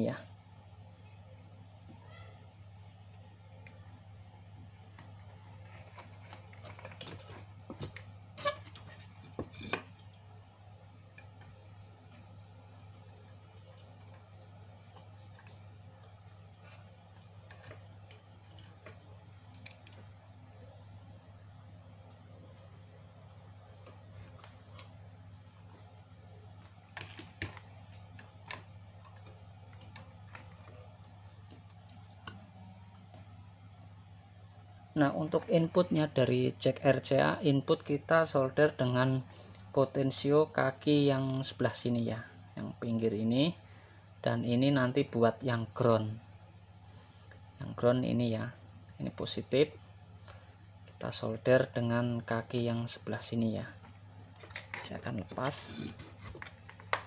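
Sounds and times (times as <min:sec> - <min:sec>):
steady low hum: 0:00.0 - 0:57.0
hands rustling wires: 0:53.8 - 0:57.0.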